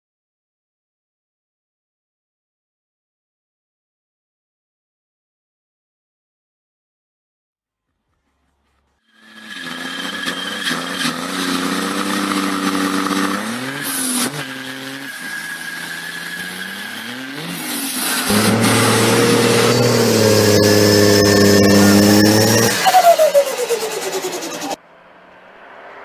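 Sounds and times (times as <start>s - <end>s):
diesel engine revving: 9.3s - 25.1s
engine running steadily: 18.3s - 22.8s.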